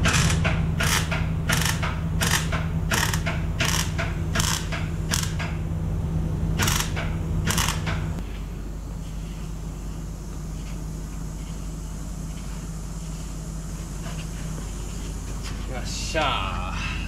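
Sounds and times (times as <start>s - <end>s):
steady machine hum: 0.0s - 17.0s.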